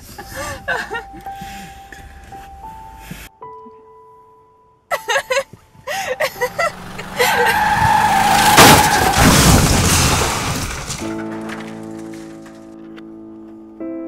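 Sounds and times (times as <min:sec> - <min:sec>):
people laughing: 0:04.9 - 0:07.8
tyres squealing in a skid: 0:06.4 - 0:11.2
loud car crash impact: 0:06.5 - 0:12.6.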